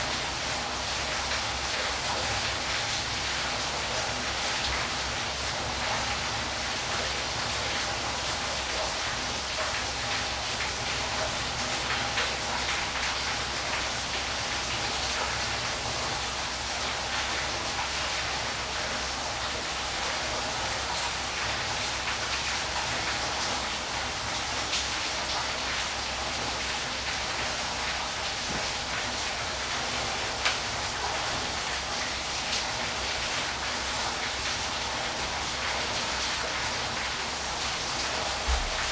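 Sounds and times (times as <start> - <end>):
waterfall rushing: 37.8 - 38.9.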